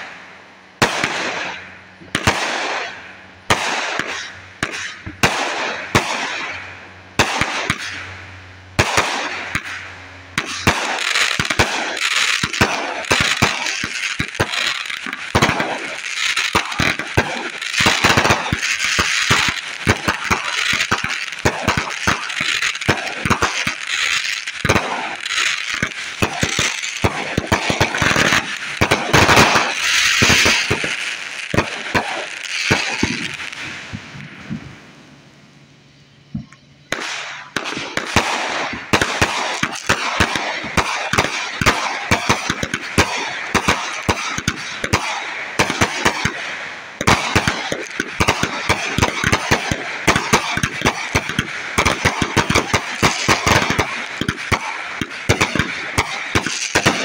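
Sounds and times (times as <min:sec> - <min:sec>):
firework bangs: 0:00.0 - 0:57.0
fireworks crackling: 0:00.0 - 0:57.0.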